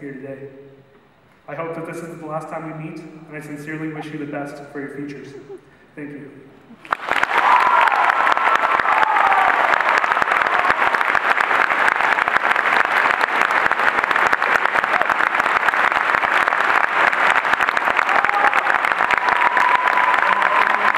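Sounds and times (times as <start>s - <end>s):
audience applauding: 6.8s - 20.9s.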